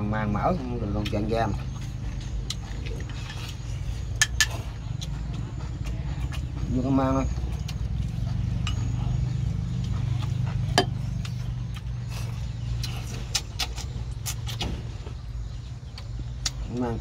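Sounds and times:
boat engine humming: 1.6 - 16.4
chopsticks and bowls clinking: 1.8 - 11.4.

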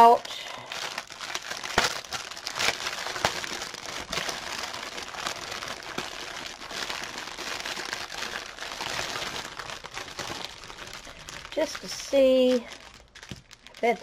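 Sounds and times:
plastic packaging crinkling: 0.0 - 14.0.

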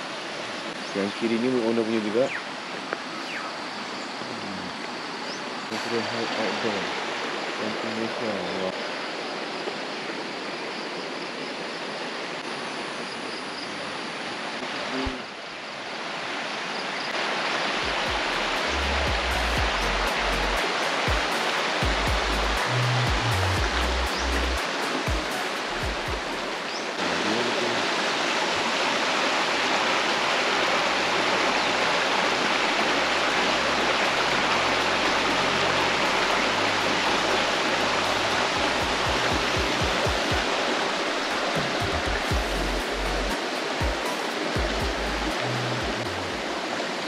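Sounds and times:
rushing river water: 0.0 - 47.0
background music with bass: 17.9 - 26.6, 32.9 - 40.5, 41.4 - 46.4.

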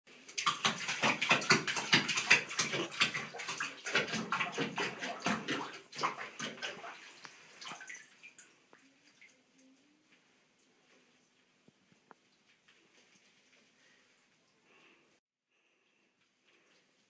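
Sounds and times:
dog splashing in water: 0.2 - 8.5.

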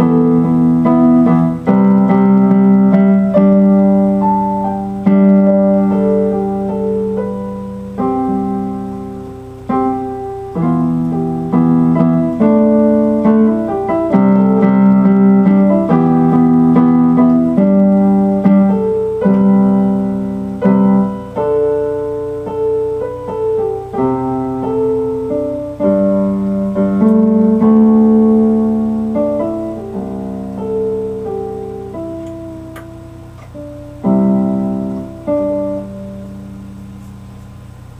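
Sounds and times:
piano chords: 0.0 - 37.9.

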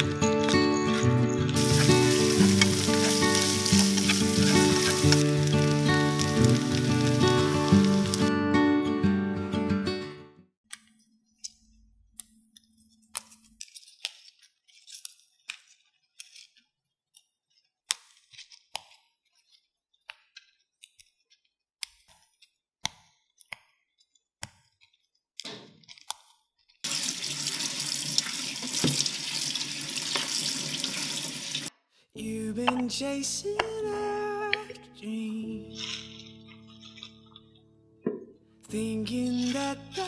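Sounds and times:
leaves snapping and rustling: 1.6 - 8.3
kitchen tap running: 26.8 - 31.7.

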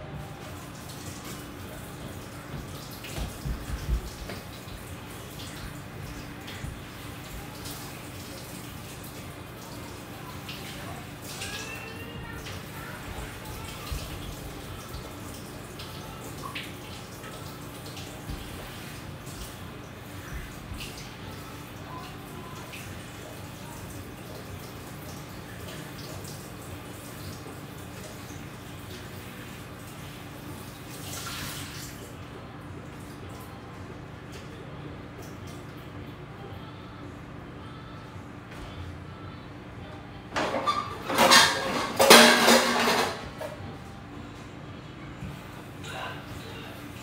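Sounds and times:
dishes washed by hand: 0.2 - 32.1, 40.4 - 43.6
water splashing in a sink: 0.2 - 32.2
dishware knocking: 40.4 - 43.2.

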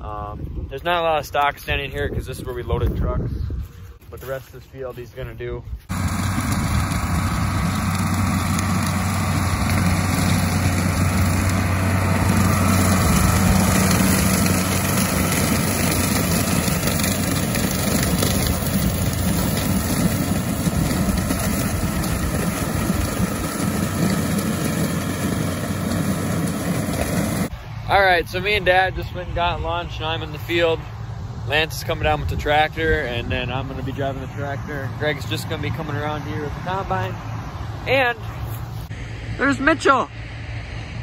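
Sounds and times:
rotary mower rushing: 5.9 - 27.5
tractor diesel engine droning: 5.9 - 41.0.

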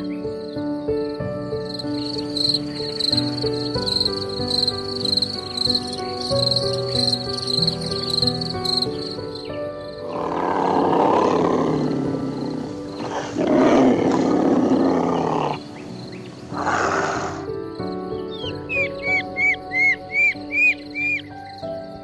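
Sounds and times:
background music: 0.0 - 22.0
large animal roaring: 10.0 - 15.7, 16.5 - 17.5.

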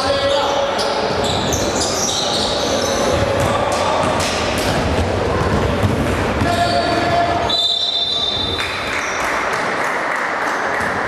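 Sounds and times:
basketball bouncing: 3.0 - 7.2
referee's whistle: 7.4 - 8.6.

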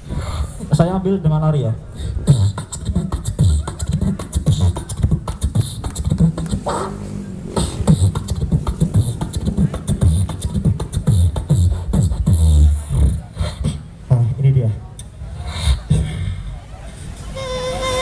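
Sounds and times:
person beatboxing into a microphone: 0.0 - 0.8, 1.9 - 16.5
falling vocal sweep: 2.1 - 13.9
low bass hums: 2.2 - 14.0.

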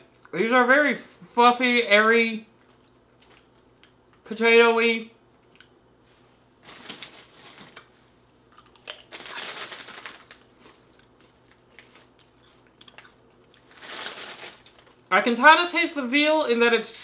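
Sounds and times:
plastic snack bag crinkling: 6.6 - 8.0, 8.6 - 15.1.

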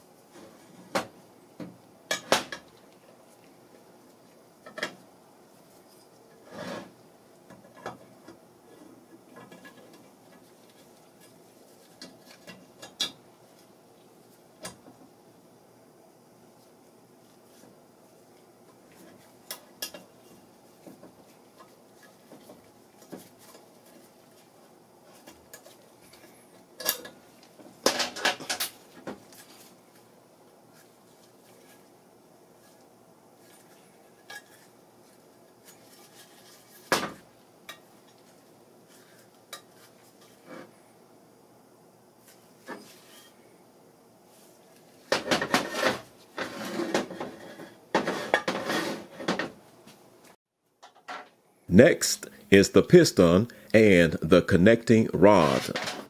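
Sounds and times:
metal clunks and scraping: 45.1 - 49.6.

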